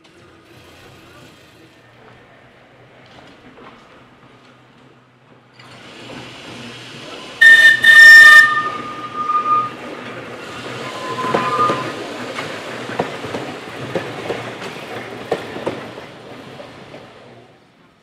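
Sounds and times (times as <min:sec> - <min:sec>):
wheels rumbling over rail joints: 0:00.0 - 0:17.2
tram warning horn blasts: 0:07.4 - 0:10.0, 0:10.8 - 0:12.0.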